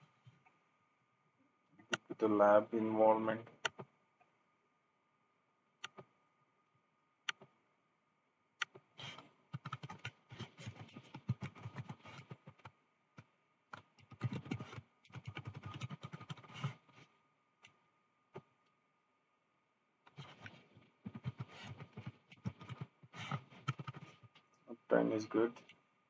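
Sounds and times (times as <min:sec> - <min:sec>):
computer keyboard typing: 0:09.6 - 0:12.7, 0:13.8 - 0:16.8, 0:21.1 - 0:24.2.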